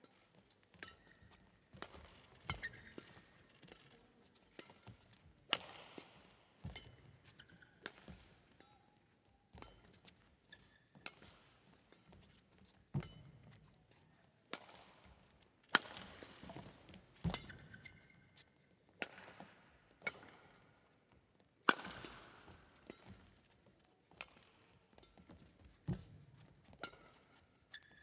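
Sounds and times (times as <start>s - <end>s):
court shoes squeaking: 0.0s - 21.2s, 22.0s - 28.0s
racket striking shuttlecock: 0.7s - 3.3s, 4.5s - 8.8s, 9.5s - 12.1s, 14.5s - 17.8s, 19.0s - 20.6s, 21.7s - 23.3s.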